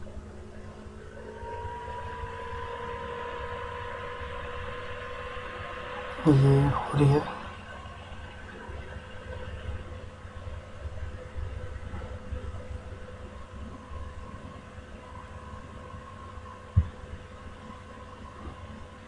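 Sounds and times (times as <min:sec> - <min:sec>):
computer fan hum: 0:00.0 - 0:19.0.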